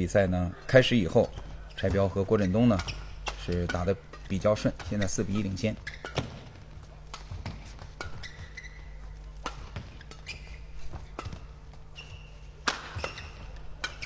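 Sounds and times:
low hum of hall: 0:00.0 - 0:14.0
shoes squeaking on court: 0:00.5 - 0:14.0
rackets striking shuttlecock: 0:02.6 - 0:14.0.

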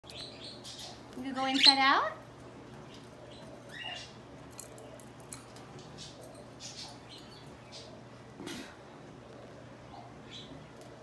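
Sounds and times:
budgies chirping: 0:00.1 - 0:02.2, 0:02.8 - 0:04.2.

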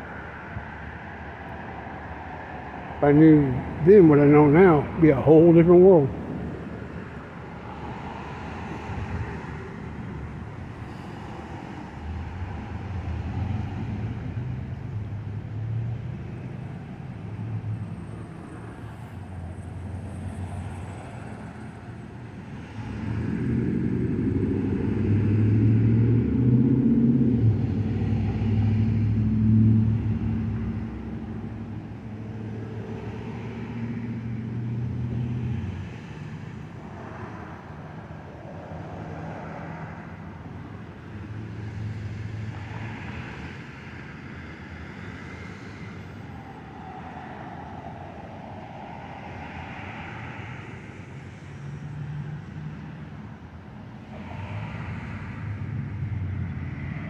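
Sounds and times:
engine hum: 0:00.0 - 0:57.0
road traffic: 0:00.0 - 0:57.0.

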